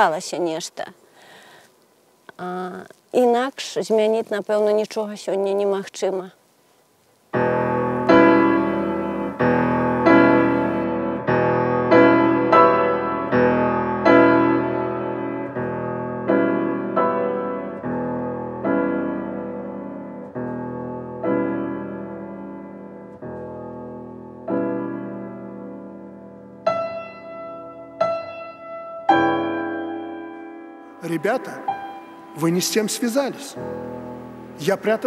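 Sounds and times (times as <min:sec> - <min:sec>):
slow solo piano chords: 0:07.3 - 0:35.0.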